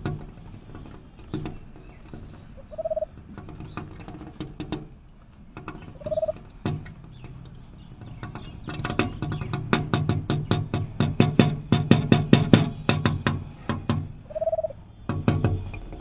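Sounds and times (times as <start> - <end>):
low pulsing bird call: 2.2 - 3.1, 5.9 - 6.4, 14.2 - 15.7
bird bill tapping on glass: 5.6 - 16.0.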